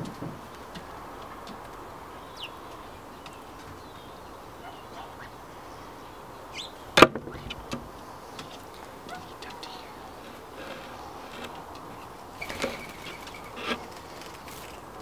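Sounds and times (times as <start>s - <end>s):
faint high bird chirps: 12.4s - 13.6s.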